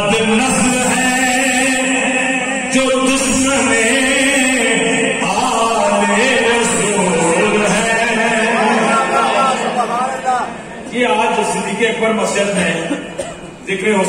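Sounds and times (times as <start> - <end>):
man chanting into microphone: 0.0 - 9.5.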